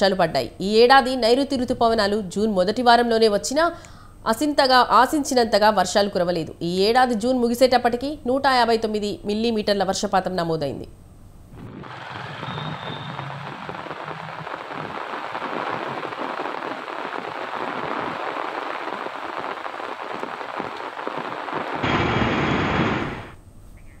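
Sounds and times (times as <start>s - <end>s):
heavy rain falling: 11.6s - 23.4s.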